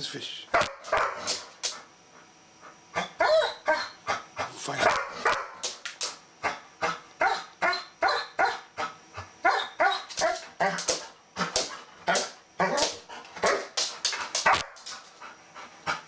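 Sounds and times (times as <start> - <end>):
dog barking and whining: 0.5 - 1.5, 2.9 - 5.6, 6.4 - 13.8.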